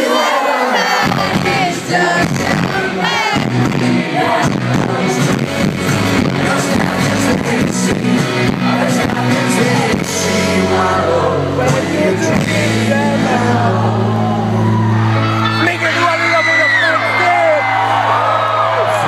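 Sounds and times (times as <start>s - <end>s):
live rock band: 0.8s - 19.0s
person singing: 6.2s - 14.8s.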